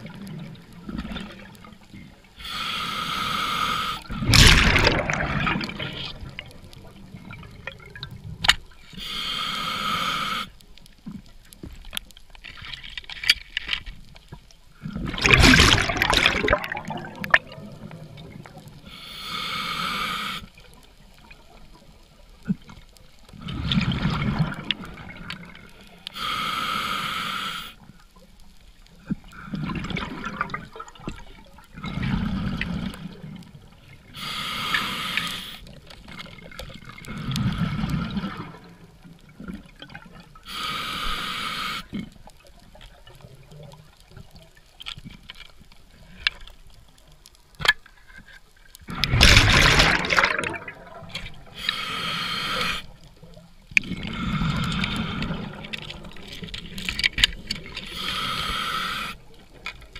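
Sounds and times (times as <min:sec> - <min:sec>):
regulator hissing inhalations: 0:02.4 - 0:04.1, 0:09.0 - 0:10.6, 0:18.8 - 0:20.5, 0:26.1 - 0:27.8, 0:34.1 - 0:35.7, 0:40.5 - 0:41.9, 0:51.5 - 0:53.0, 0:57.8 - 0:59.3
exhaled bubbles rushing: 0:04.1 - 0:08.2, 0:14.9 - 0:18.6, 0:23.4 - 0:25.6, 0:29.6 - 0:31.0, 0:48.9 - 0:51.5.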